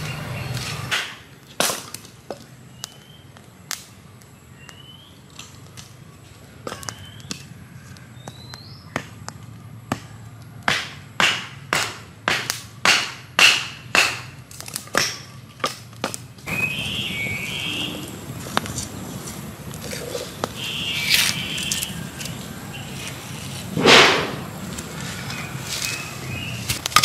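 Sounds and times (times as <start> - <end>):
hatchet chopping firewood: 0.9 - 3.0, 8.1 - 16.3.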